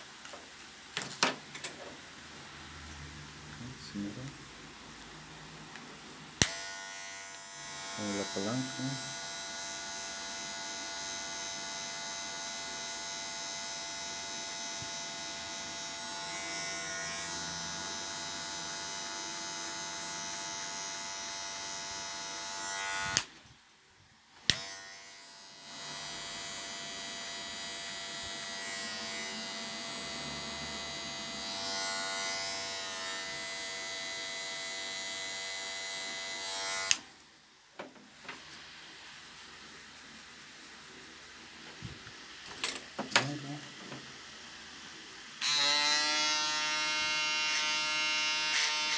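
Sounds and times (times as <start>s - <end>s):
hair clipper buzzing: 6.4s - 23.3s, 24.4s - 37.2s, 45.4s - 48.9s.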